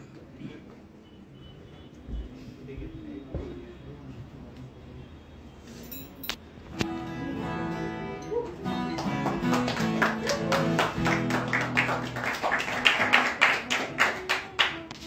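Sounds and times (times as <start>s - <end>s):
acoustic guitar playing: 6.7s - 15.0s.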